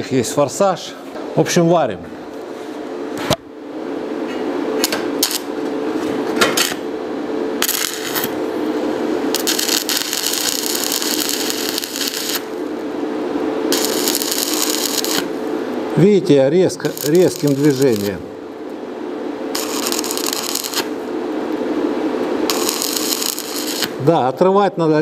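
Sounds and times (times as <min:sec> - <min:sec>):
steady hum: 0:00.0 - 0:25.0
welding arc crackling: 0:04.8 - 0:18.8, 0:19.4 - 0:24.4.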